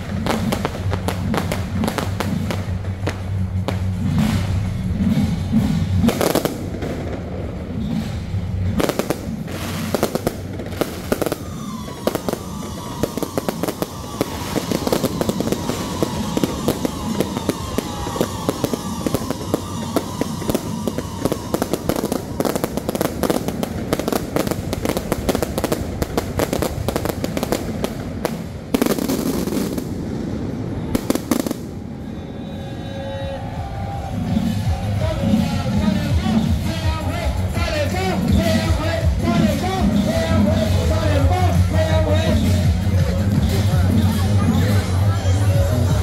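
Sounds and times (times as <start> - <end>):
fireworks bangs and crackles: 0.0 - 32.3, 33.5 - 46.0
whistling tone gliding downward: 10.9 - 23.4.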